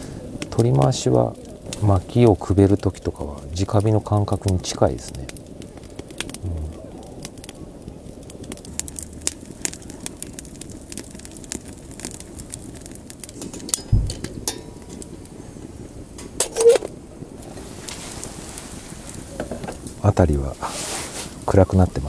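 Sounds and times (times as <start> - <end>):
fire crackling and popping: 0.0 - 22.0
dull low thump: 13.9 - 14.3.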